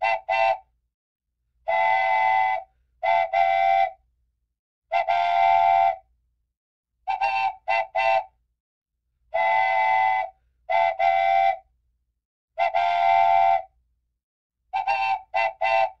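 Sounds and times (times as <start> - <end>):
train whistle blasts and toots: 0.0 - 0.7, 1.6 - 4.0, 4.9 - 6.1, 7.1 - 8.4, 9.3 - 11.7, 12.6 - 13.8, 14.8 - 16.0.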